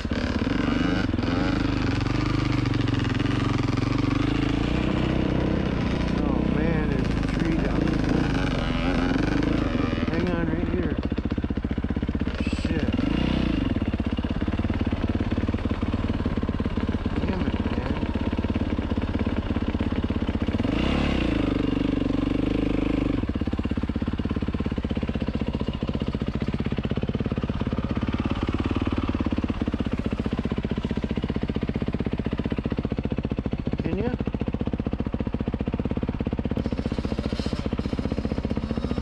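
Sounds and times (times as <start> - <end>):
dirt bike engine revving: 0.0 - 35.1, 35.7 - 39.0.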